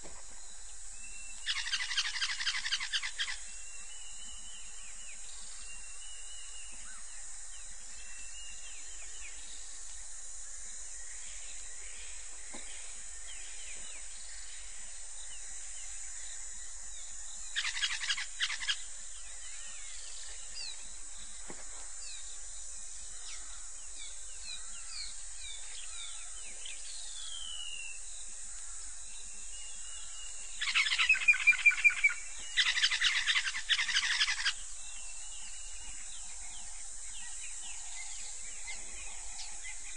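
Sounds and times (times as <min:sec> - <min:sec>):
high insect buzz: 0:00.0 - 0:39.9
rapid rattling calls: 0:01.4 - 0:03.5, 0:17.6 - 0:19.0, 0:30.6 - 0:34.7
birds chirping and whistling: 0:29.9 - 0:39.9.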